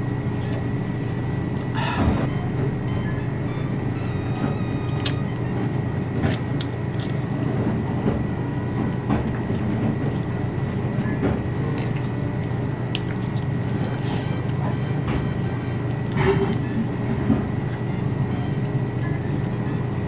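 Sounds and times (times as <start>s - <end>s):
low room hum: 0.0s - 20.0s
chewing: 6.2s - 7.3s, 9.4s - 14.7s.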